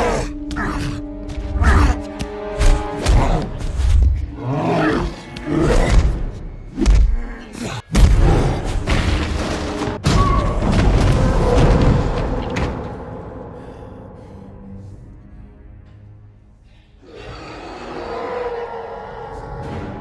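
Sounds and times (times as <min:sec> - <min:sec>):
orchestral score: 0:00.0 - 0:06.8.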